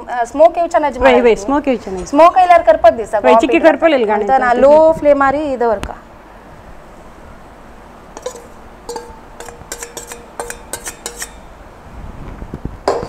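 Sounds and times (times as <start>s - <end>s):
spoon tapping metal bowl: 8.2s - 11.5s.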